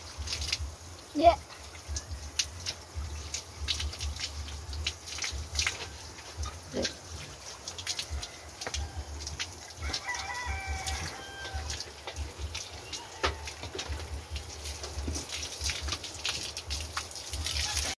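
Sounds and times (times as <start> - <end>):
hose water splashing on floor: 0.0 - 18.0
rooster crowing: 7.8 - 12.0, 12.8 - 14.0, 17.5 - 18.0.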